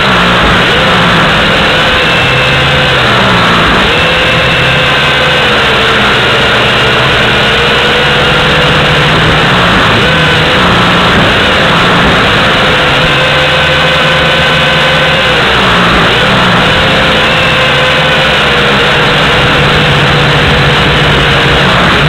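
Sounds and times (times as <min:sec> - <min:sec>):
drone propellers whirring: 0:00.0 - 0:22.0.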